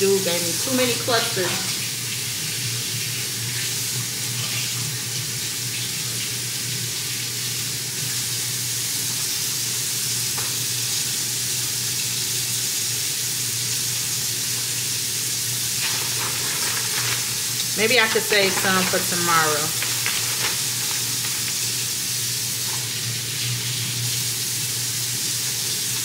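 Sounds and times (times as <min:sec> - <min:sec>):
rushing water hiss: 0:12.6 - 0:26.0.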